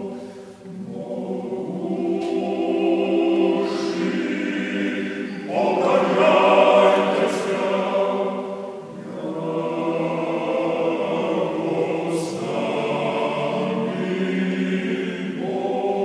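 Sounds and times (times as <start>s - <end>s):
male choir chanting a cappella: 0.0s - 16.0s.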